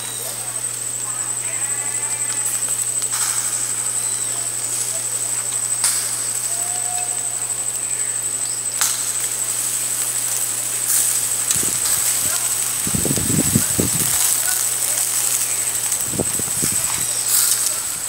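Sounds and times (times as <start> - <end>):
high-pitched insect trill: 0.0 - 18.0
metal tongs clicking on grill: 8.8 - 17.9.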